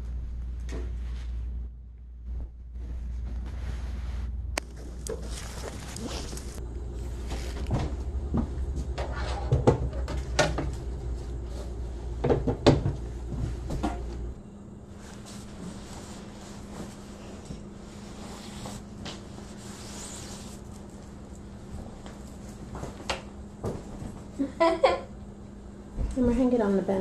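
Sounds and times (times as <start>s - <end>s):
steady low rumble: 0.0s - 18.2s
cupboard doors knocking and clatter: 12.2s - 13.0s.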